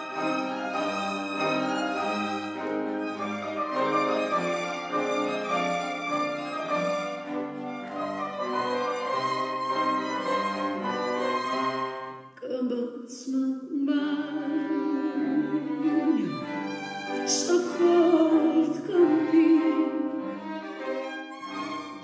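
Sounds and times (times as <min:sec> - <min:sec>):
piano: 0:00.0 - 0:12.4, 0:14.1 - 0:22.0
string instruments: 0:00.0 - 0:13.2, 0:13.8 - 0:22.0
woman singing into microphone: 0:12.4 - 0:16.4, 0:17.3 - 0:20.2.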